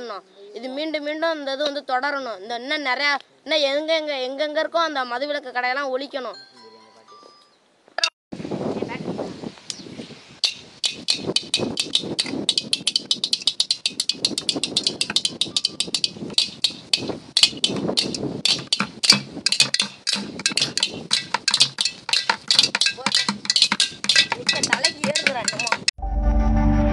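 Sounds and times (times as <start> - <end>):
frame drums beaten with sticks: 10.4 - 25.9.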